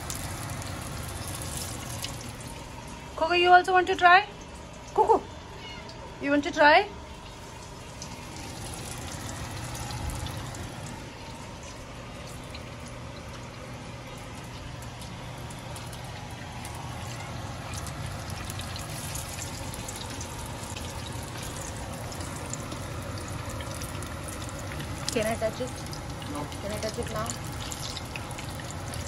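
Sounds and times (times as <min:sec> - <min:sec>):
oil crackling and popping: 0:00.0 - 0:03.1, 0:07.2 - 0:29.0
food deep-frying in oil: 0:00.0 - 0:29.0.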